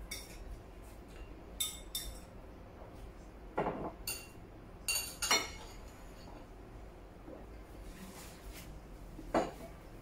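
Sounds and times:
spoon and chopsticks clinking bowls: 0:00.0 - 0:00.6, 0:01.2 - 0:02.4, 0:04.0 - 0:06.4.

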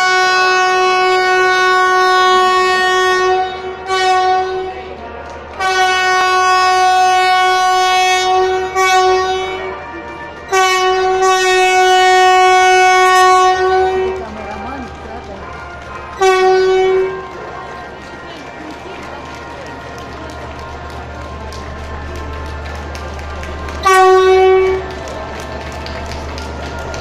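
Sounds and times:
train horn blasts: 0:00.0 - 0:15.0, 0:16.0 - 0:17.6, 0:23.7 - 0:25.2.

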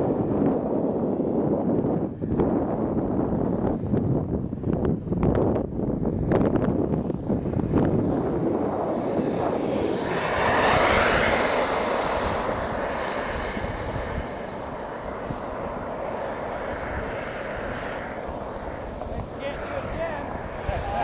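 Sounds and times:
model jet engine whining: 0:00.0 - 0:21.0.

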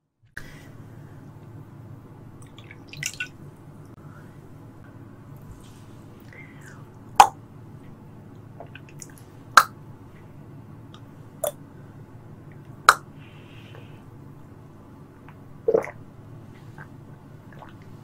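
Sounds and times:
faint background hum: 0:00.0 - 0:18.0
wet mouth clicks: 0:12.9 - 0:13.1, 0:15.3 - 0:16.0.

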